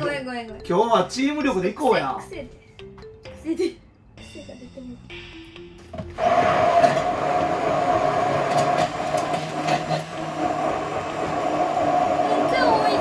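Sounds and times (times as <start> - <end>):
electric hand blender whirring: 6.2 - 13.0.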